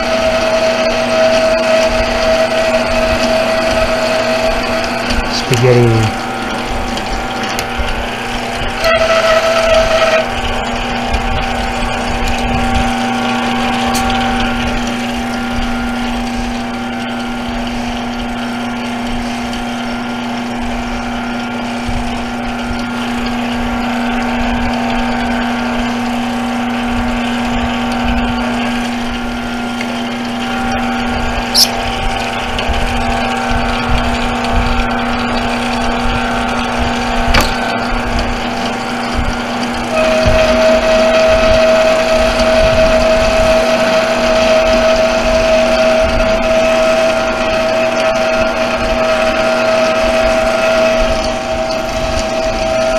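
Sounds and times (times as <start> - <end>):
high ringing squeal: 0.0 - 5.3, 8.0 - 18.9, 22.4 - 32.5, 38.5 - 52.9
lathe motor hum-whine: 0.0 - 52.9
short high chirp: 31.5 - 31.8.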